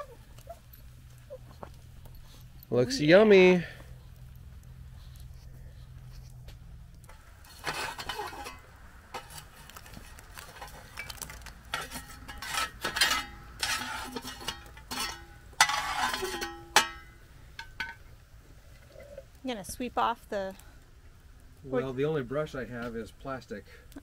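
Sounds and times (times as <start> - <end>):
shovel scraping metal lid: 7.1 - 17.0
ringing metal clanks: 12.3 - 18.0.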